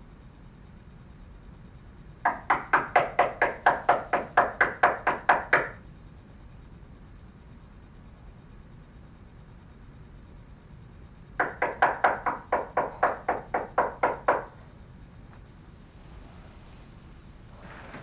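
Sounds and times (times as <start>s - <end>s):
rapid knocking on a door: 2.2s - 5.8s, 11.4s - 14.6s.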